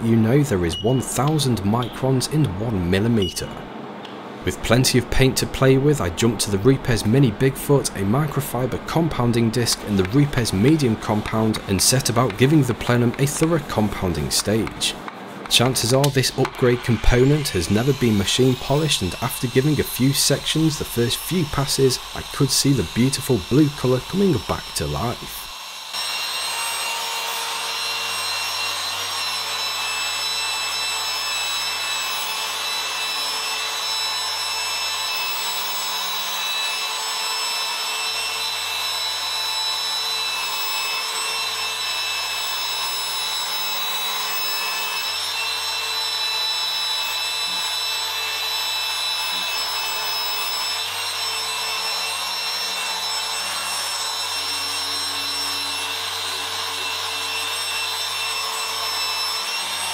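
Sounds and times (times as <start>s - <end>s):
polisher whining: 16.1s - 59.9s.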